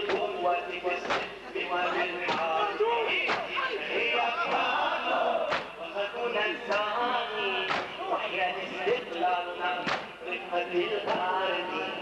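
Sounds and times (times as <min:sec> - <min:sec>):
man chanting a lament: 0:00.0 - 0:12.0
crowd striking chests in unison: 0:05.5 - 0:05.8, 0:07.7 - 0:08.0, 0:09.8 - 0:10.1.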